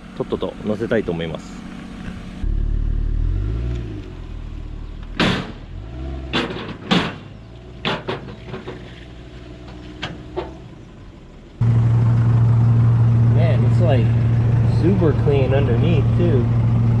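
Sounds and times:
low engine hum: 0.0s - 17.0s
metal clanks and knocks: 6.3s - 9.0s.

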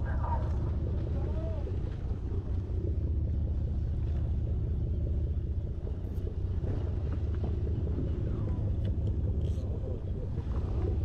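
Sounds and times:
boat engine droning: 0.0s - 11.0s
faint clicks: 8.5s - 10.1s.

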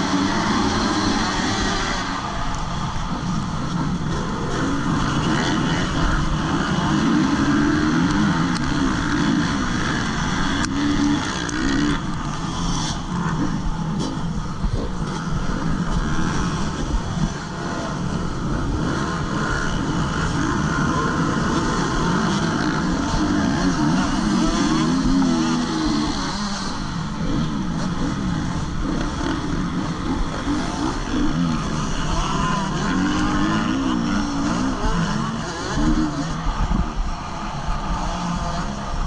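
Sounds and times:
motocross bike engines revving: 0.0s - 39.0s.

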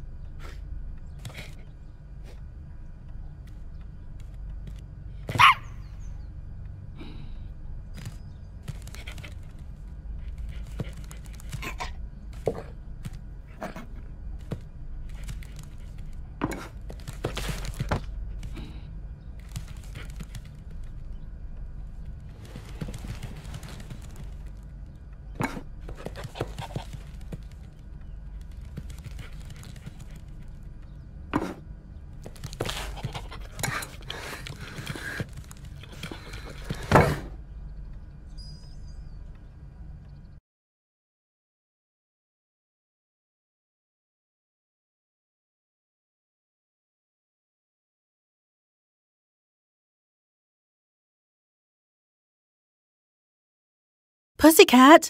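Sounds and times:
steady low hum: 0.0s - 40.4s.

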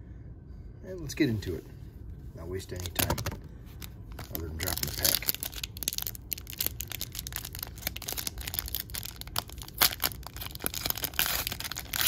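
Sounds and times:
foil wrapper crinkling and tearing: 3.8s - 12.0s.

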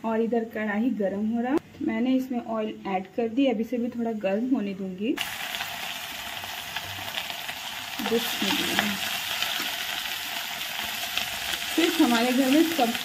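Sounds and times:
fish frying in hot oil: 5.2s - 13.0s.

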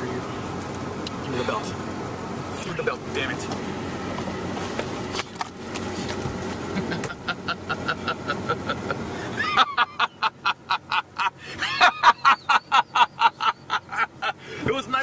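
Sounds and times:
man laughing: 6.7s - 14.6s.

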